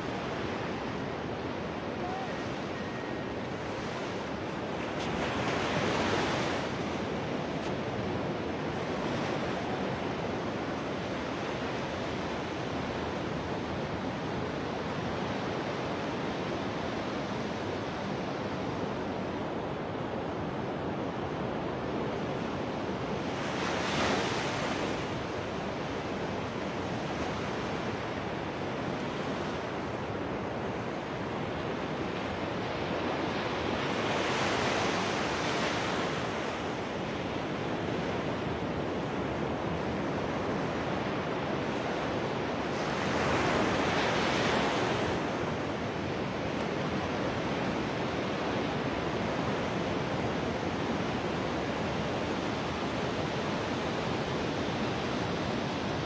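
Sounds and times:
waves breaking: 0.0s - 12.1s
ocean surf on beach: 0.0s - 56.0s.

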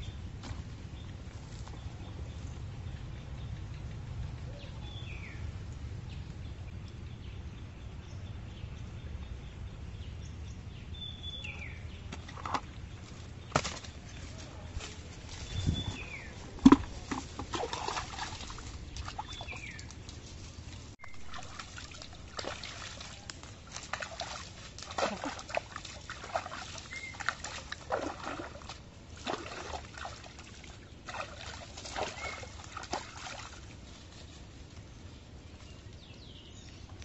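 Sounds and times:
dry leaves crackling: 13.0s - 28.5s, 31.6s - 36.7s
hands splashing in water: 16.6s - 20.2s, 21.2s - 33.6s.

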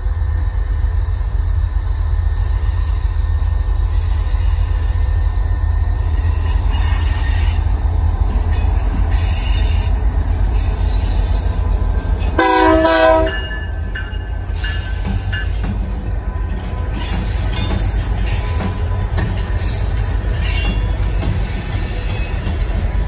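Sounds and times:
diesel locomotive engines rumbling: 0.0s - 23.0s
locomotive horn blast: 12.4s - 13.8s.

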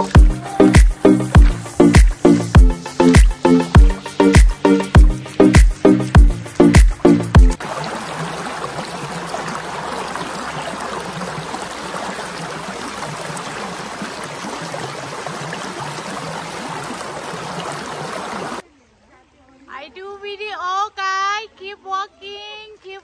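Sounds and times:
creek rushing over stones: 4.4s - 18.6s.

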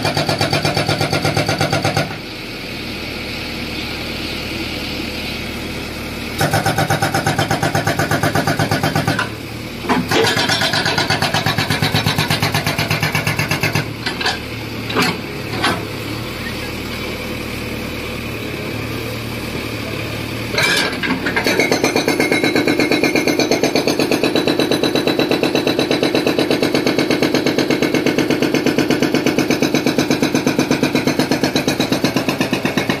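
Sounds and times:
hydraulic breaker hammering concrete: 0.0s - 2.3s, 6.3s - 16.0s, 20.5s - 33.0s
diesel engine running: 0.0s - 33.0s.

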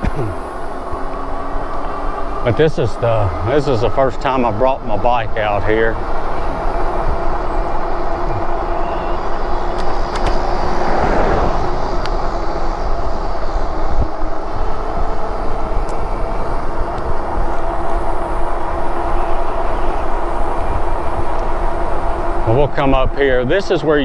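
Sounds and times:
steady hum: 0.0s - 24.0s
wind noise on microphone: 4.8s - 23.4s.

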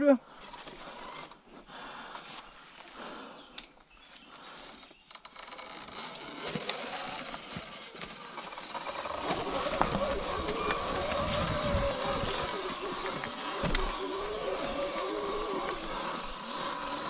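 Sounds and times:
tyres crackling over leaves and stones: 5.2s - 17.0s
electric motor whine: 5.3s - 17.0s.

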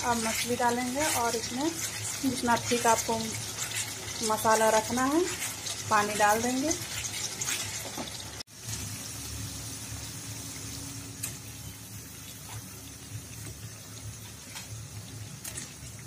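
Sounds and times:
curry bubbling in a pan: 0.0s - 8.8s.

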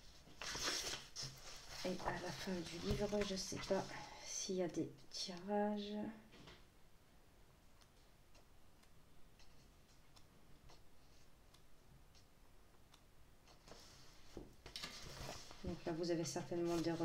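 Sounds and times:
book pages turning: 0.2s - 4.0s, 13.5s - 15.8s.

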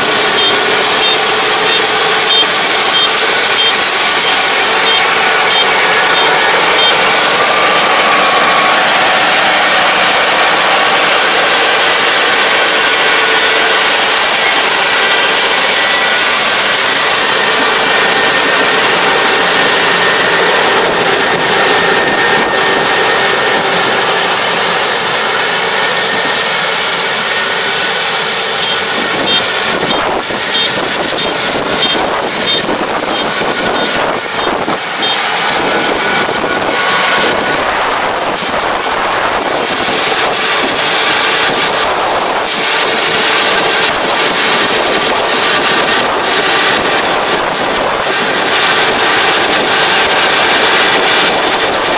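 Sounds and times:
combine harvester running: 0.0s - 51.9s
faint high-pitched beeps: 0.4s - 7.0s.

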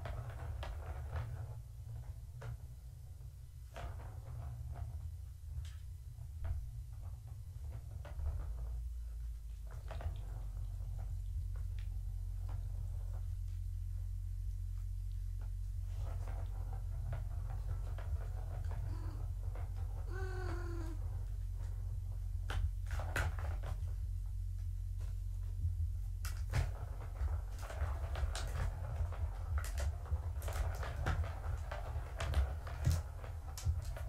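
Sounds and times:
steady low hum: 0.0s - 34.0s
cat meowing: 20.1s - 21.0s.

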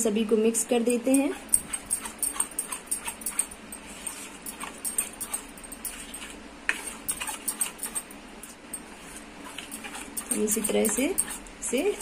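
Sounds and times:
spoon stirring batter in steel bowl: 0.7s - 12.0s.

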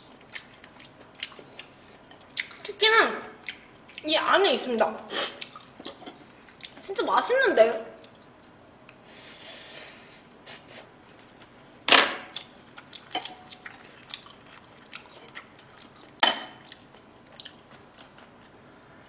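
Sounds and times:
soft chewing: 0.0s - 2.7s, 3.4s - 4.1s, 5.2s - 6.8s, 7.8s - 9.1s, 12.3s - 18.7s.

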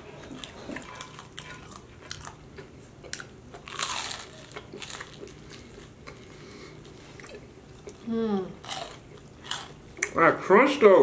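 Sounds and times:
fried chicken crunching: 0.4s - 6.2s, 8.6s - 9.8s.

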